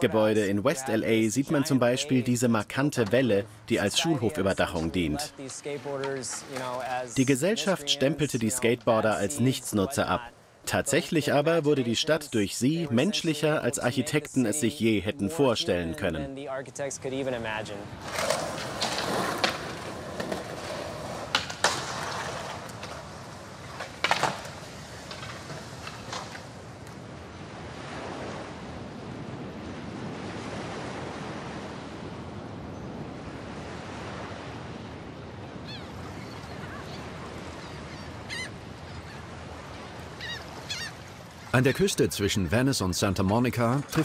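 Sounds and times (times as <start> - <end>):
ocean surf breaking: 0.0 - 44.0
skateboard wheels rolling on concrete: 2.8 - 7.6, 17.6 - 28.5
skateboard clacks: 18.0 - 27.0.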